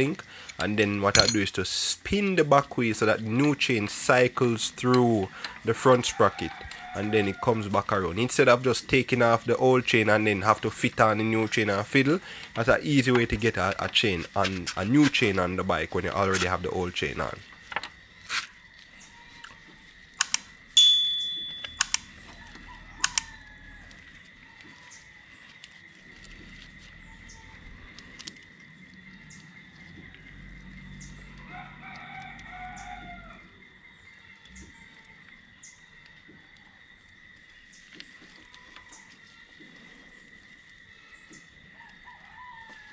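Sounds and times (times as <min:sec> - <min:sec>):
metal clinks: 0:00.5 - 0:01.6, 0:20.8 - 0:22.2
rooster crowing: 0:05.2 - 0:08.8, 0:21.8 - 0:25.1, 0:30.7 - 0:33.7, 0:41.7 - 0:42.9
loud ringing metal clang: 0:20.8 - 0:21.7.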